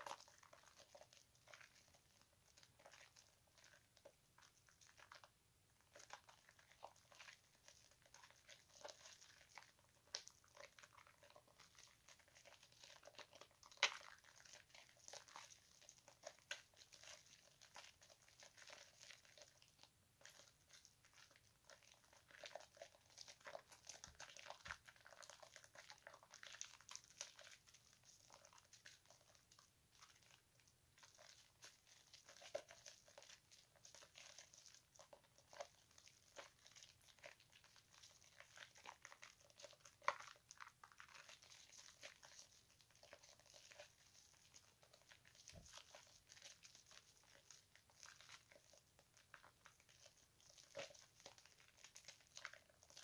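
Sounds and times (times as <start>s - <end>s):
wet squishing of soap lather: 0.0s - 53.0s
foam bubbles popping: 31.0s - 53.0s.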